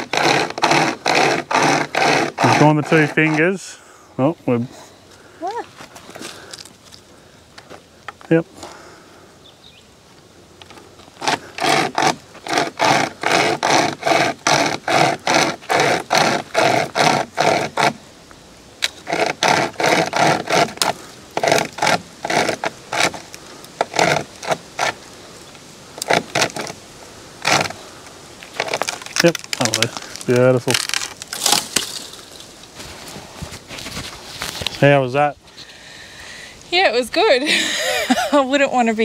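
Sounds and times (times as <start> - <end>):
chain saw rasping through branch: 0.0 - 3.7, 10.7 - 18.0, 18.8 - 25.1, 26.0 - 26.8, 27.4 - 27.9, 28.5 - 33.1.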